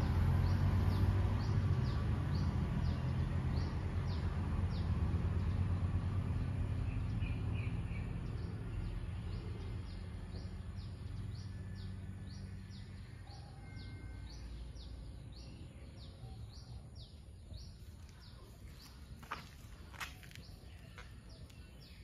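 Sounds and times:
low outdoor rumble: 0:00.0 - 0:22.0
bird chirping: 0:06.7 - 0:22.0.

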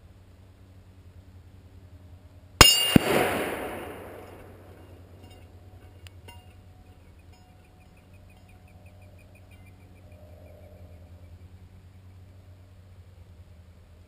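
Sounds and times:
bullet clanging on steel gong: 0:02.6 - 0:06.7
distant rifle report: 0:02.6 - 0:09.7.

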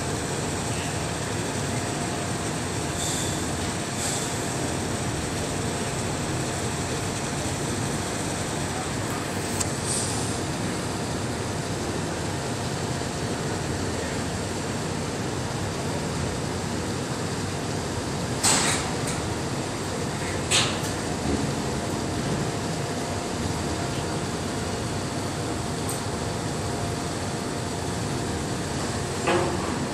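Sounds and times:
short hissing puffs: 0:03.0 - 0:03.4, 0:04.0 - 0:04.4, 0:09.8 - 0:10.4.

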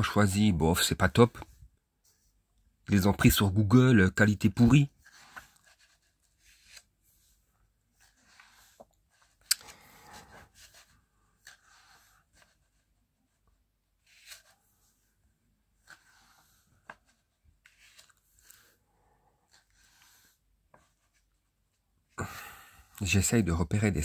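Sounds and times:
book pages rustling: 0:04.2 - 0:21.9.

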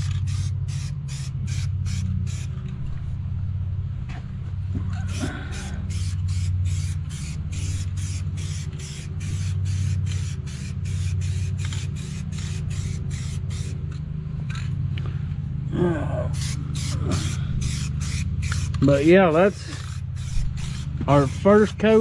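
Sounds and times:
spray can hissing bursts: 0:00.0 - 0:02.5, 0:05.1 - 0:13.8, 0:16.4 - 0:22.0
low hum: 0:00.0 - 0:18.9, 0:19.6 - 0:21.2.

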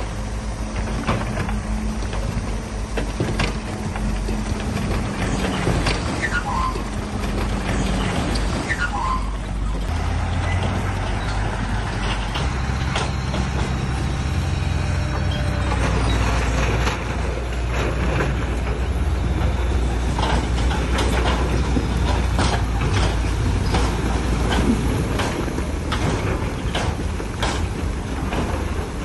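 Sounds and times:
heavy diesel machinery engine drone: 0:00.0 - 0:29.0
brief squeal: 0:05.5 - 0:06.9, 0:07.8 - 0:09.8.

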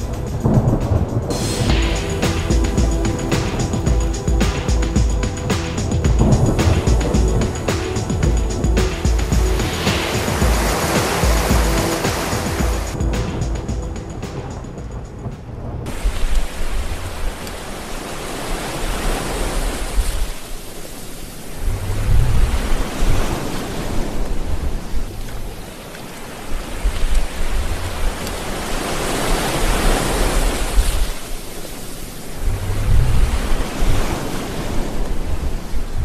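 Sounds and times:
deep rumbling: 0:00.0 - 0:16.0
rain: 0:00.0 - 0:36.0
waves rushing: 0:00.0 - 0:36.0.

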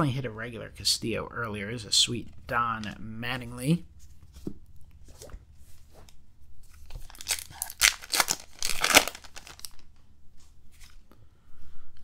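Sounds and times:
wrapper rustling: 0:06.7 - 0:10.0
wrapper crinkling and tearing: 0:06.8 - 0:09.9.

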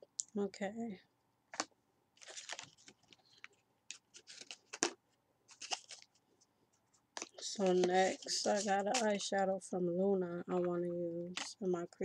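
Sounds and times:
makeup brush scraping: 0:07.2 - 0:09.2.

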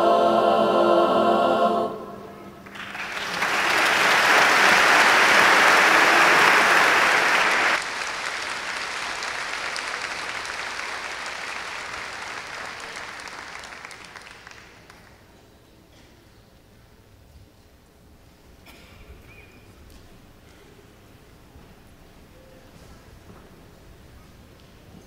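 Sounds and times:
audience applauding: 0:02.6 - 0:15.2.

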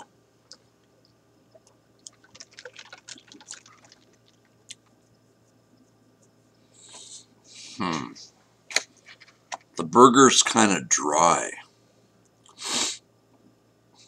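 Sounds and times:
wet mouth clicks and smacks: 0:01.5 - 0:05.0.

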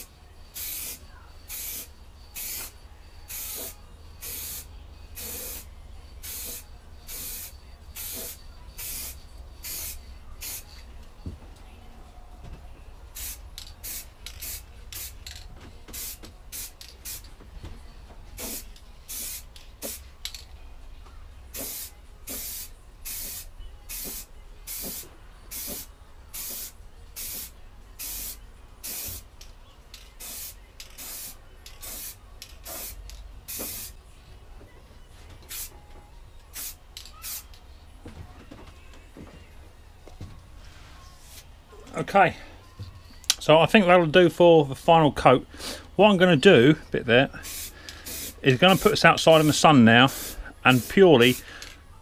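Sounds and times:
spray paint can hissing: 0:00.0 - 0:10.8, 0:13.1 - 0:17.3, 0:18.4 - 0:20.4, 0:21.5 - 0:29.3, 0:30.1 - 0:34.0, 0:35.5 - 0:35.7, 0:36.5 - 0:37.6, 0:47.4 - 0:51.4.

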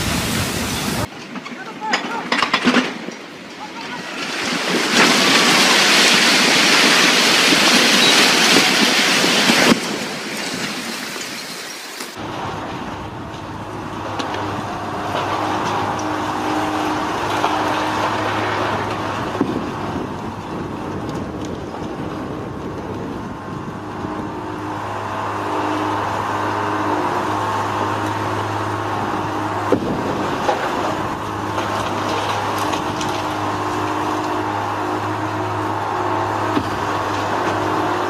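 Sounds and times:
diesel engine running: 0:12.1 - 0:38.0.

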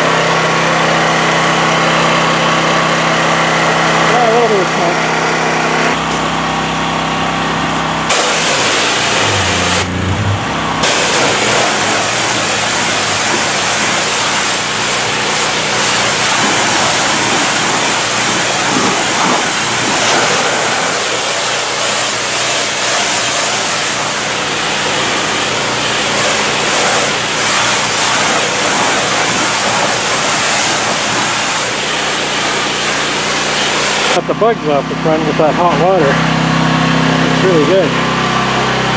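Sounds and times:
high-pressure water jet hissing: 0:00.0 - 0:05.7, 0:08.1 - 0:38.7
pressure washer engine hum: 0:00.0 - 0:38.9.

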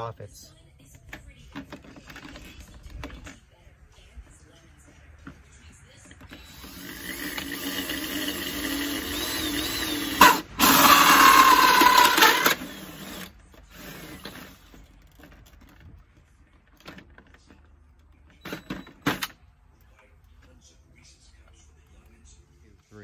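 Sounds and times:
hole saw cutting plastic: 0:06.1 - 0:14.9
cordless drill motor running: 0:06.2 - 0:14.8.

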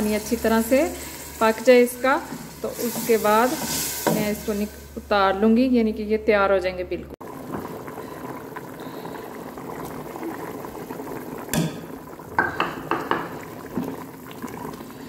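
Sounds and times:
curry bubbling in a pot: 0:07.2 - 0:15.0
wooden spoon knocking pot: 0:11.5 - 0:13.9.

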